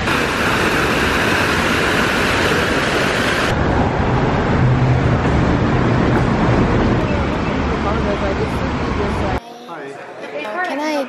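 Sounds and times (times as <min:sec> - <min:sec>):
fountain water splashing: 0:00.0 - 0:03.6
trolleybus passing: 0:00.0 - 0:09.4.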